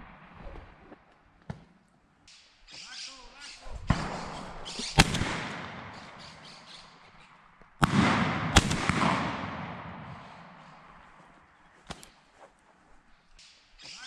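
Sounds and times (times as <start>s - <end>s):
shotgun shots echoing: 3.8s - 7.0s, 7.8s - 12.1s.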